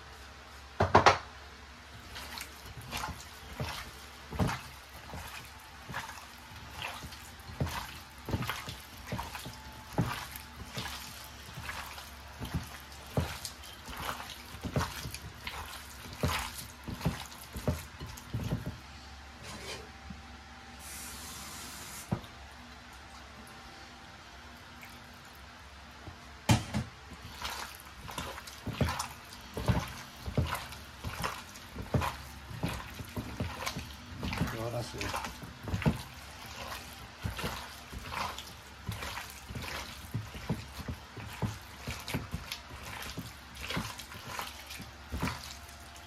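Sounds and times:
kitchen knocks and taps: 0.8 - 1.3, 16.2 - 18.8, 26.0 - 27.0.

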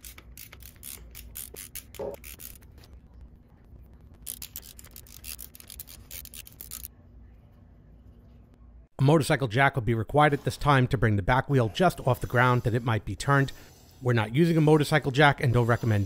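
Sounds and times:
ratchet clicking rapidly: 0.0 - 2.6.

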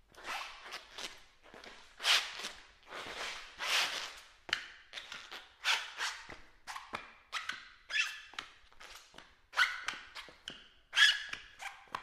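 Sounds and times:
shoe squeal: 2.0 - 4.2, 5.6 - 8.9, 9.6 - 12.0.

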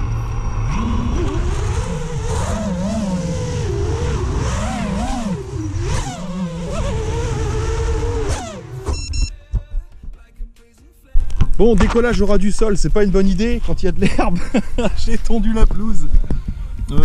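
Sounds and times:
drone motors whining: 0.0 - 9.3.

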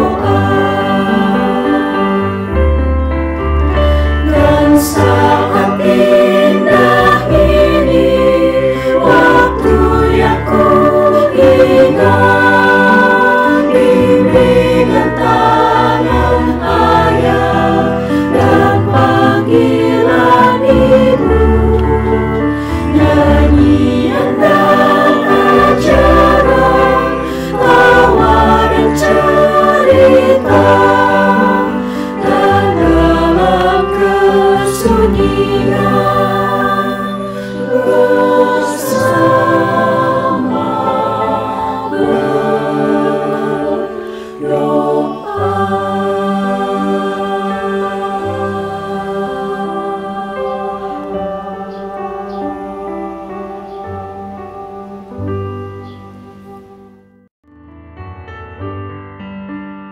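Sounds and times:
mixed choir singing a hymn: 0.0 - 56.0.

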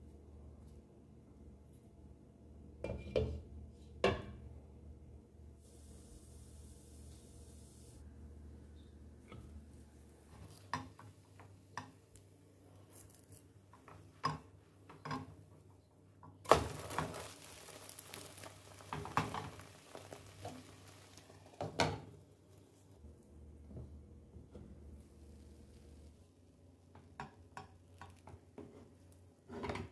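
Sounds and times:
pancake sizzling: 5.6 - 8.0, 16.5 - 21.9.

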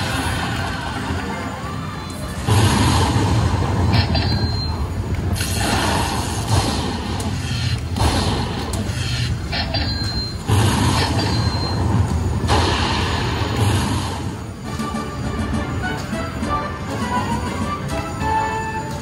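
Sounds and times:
electronic thunder-crack effects: 2.4 - 15.0.

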